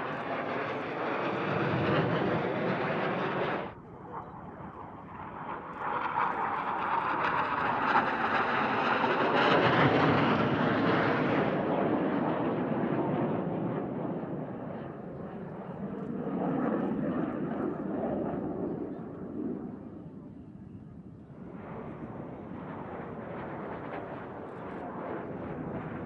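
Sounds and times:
jets flying past: 0.0s - 20.0s.

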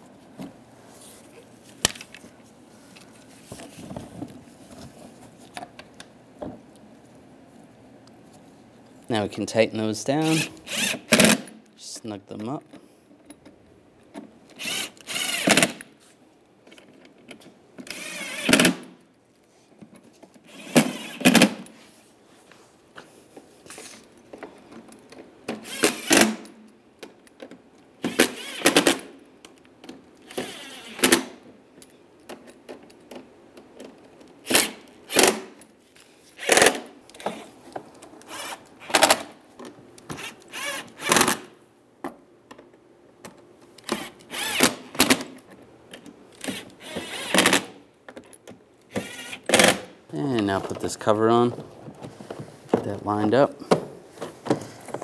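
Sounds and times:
cordless driver whirring: 10.3s - 11.5s, 14.5s - 15.9s, 17.9s - 18.8s, 20.5s - 21.5s, 25.6s - 26.4s, 28.0s - 29.0s, 30.2s - 31.3s, 38.1s - 39.2s, 40.1s - 41.4s, 43.8s - 45.1s, 46.4s - 47.7s, 48.9s - 49.8s.

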